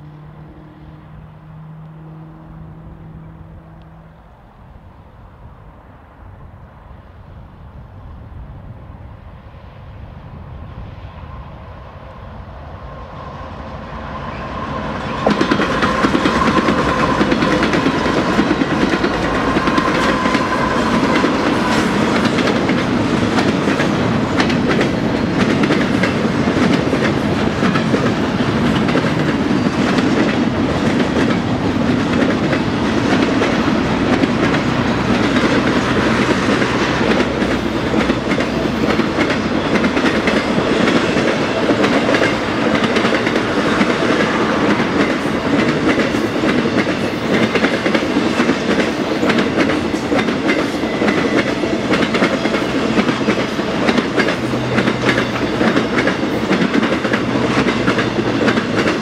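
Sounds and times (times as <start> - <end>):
freight train rumble: 0.0 - 59.0
train cars clickety-clack: 13.2 - 59.0.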